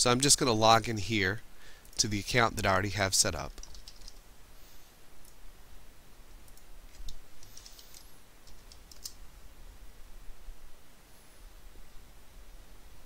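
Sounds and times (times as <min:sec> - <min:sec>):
keyboard and mouse clicks: 0:03.5 - 0:04.2, 0:06.4 - 0:09.2.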